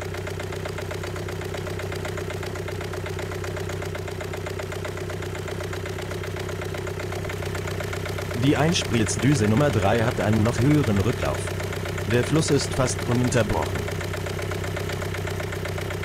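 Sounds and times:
diesel engine idling: 0.0 - 16.0.

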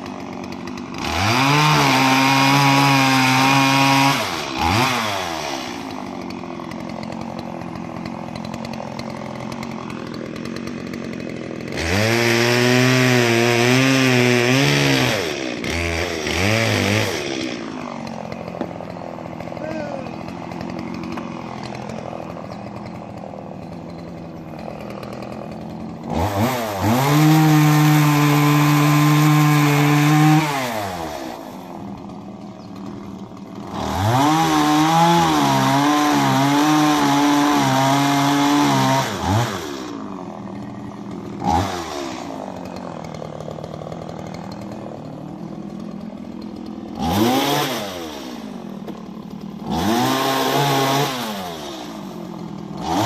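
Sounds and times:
chainsaw idling and revving: 0.0 - 53.0.

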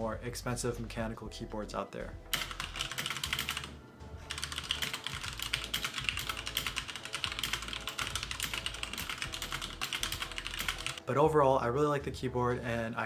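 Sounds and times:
mechanical keyboard typing: 2.3 - 3.7, 4.3 - 11.0.

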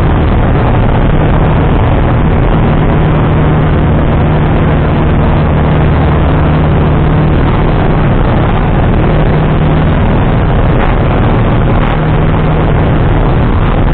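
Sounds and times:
light aircraft engine drone: 0.0 - 13.9.

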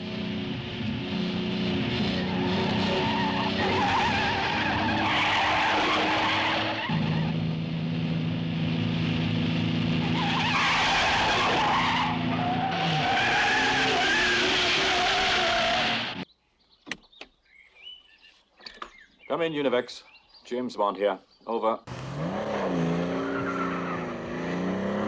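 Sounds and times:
car engines running hard: 0.0 - 16.2, 21.9 - 25.0
tires squealing and skidding: 1.9 - 7.4, 10.0 - 16.2, 22.0 - 25.0.

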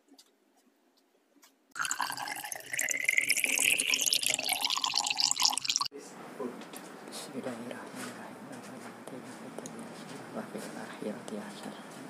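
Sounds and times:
water pouring and splashing: 1.8 - 5.9.

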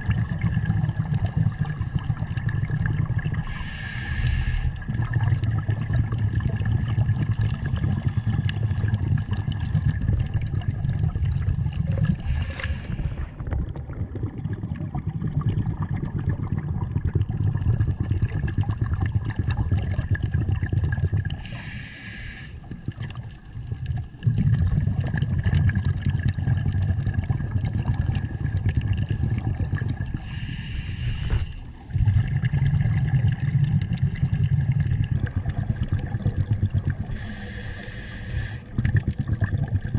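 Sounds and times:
gurgling exhaled bubbles: 0.0 - 39.9
hissing regulator inhalations: 3.4 - 4.8, 12.2 - 13.4, 21.4 - 22.6, 30.2 - 31.7, 37.1 - 38.7.

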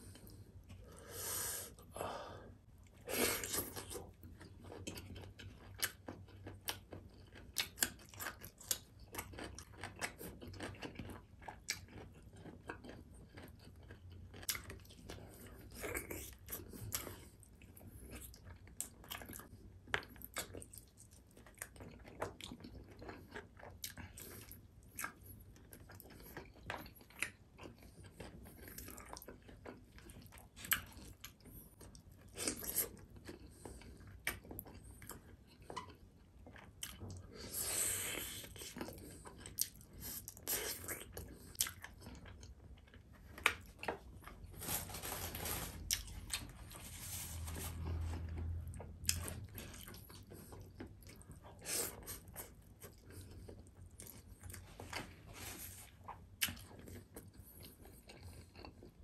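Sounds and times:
close chewing with wet mouth clicks: 3.4 - 44.4, 56.0 - 59.0.

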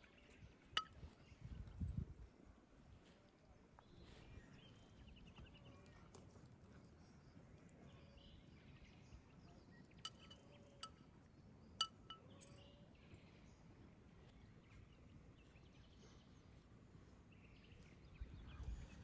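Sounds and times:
faint outdoor ambience: 0.0 - 19.0
light ringing clinks: 10.0 - 11.2, 11.8 - 12.9.

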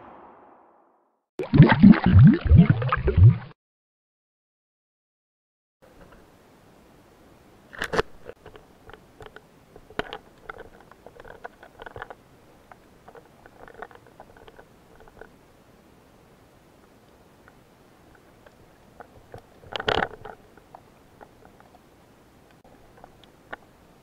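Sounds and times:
underwater clicks and crackles: 7.7 - 15.4, 16.8 - 21.8, 22.5 - 23.7.

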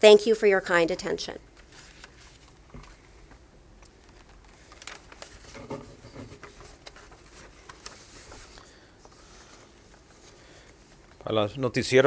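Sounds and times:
small clicks and rustles: 1.5 - 11.3.

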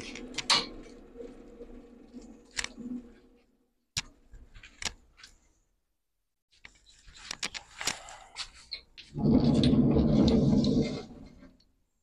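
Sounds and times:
sharp clicks and knocks: 0.0 - 1.0.

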